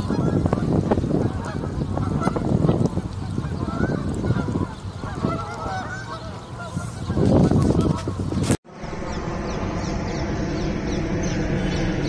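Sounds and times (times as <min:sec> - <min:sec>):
geese honking: 0:00.0 - 0:08.4
low rumble: 0:08.7 - 0:12.0.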